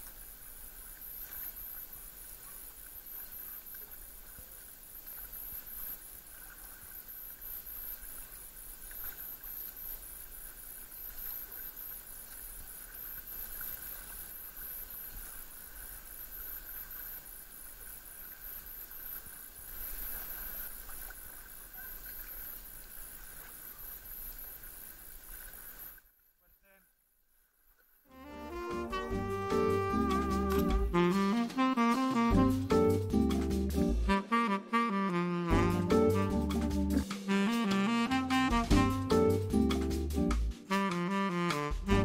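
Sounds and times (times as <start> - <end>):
paddle strokes: 0.0 - 26.1, 27.4 - 42.0
water washing along hull: 0.0 - 26.1, 28.2 - 33.0
steady hiss: 0.0 - 27.4.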